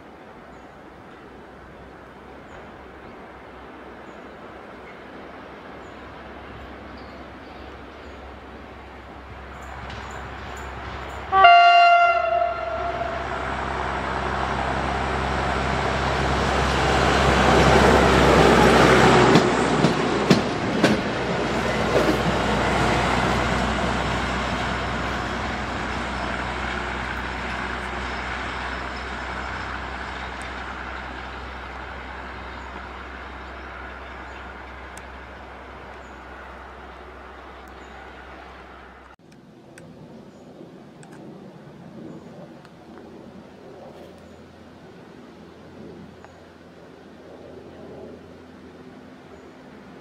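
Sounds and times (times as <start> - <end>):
rail trolley engine passing: 0.0 - 50.0
wheels clicking over rail joints: 8.9 - 11.4
short horn blast: 11.3 - 13.5.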